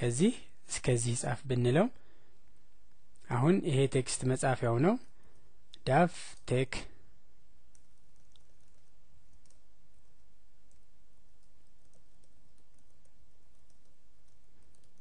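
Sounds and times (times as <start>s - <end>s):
low background hum: 0.0s - 15.0s
keyboard typing: 7.7s - 15.0s.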